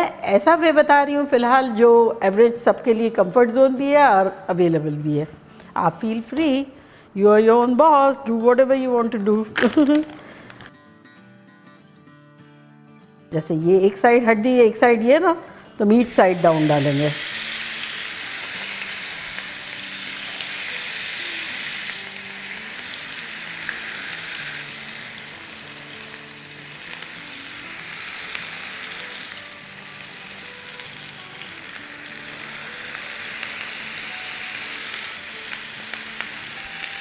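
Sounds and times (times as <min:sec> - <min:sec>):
chicken sizzling in hot oil: 0:16.1 - 0:37.0.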